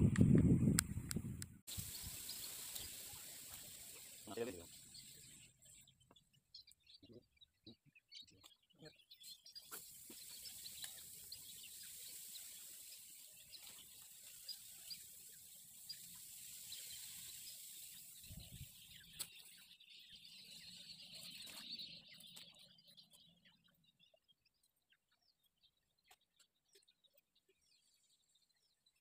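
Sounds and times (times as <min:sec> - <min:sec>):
steady high hiss: 0:01.7 - 0:05.4, 0:09.7 - 0:19.3
bird chirps: 0:01.7 - 0:29.0.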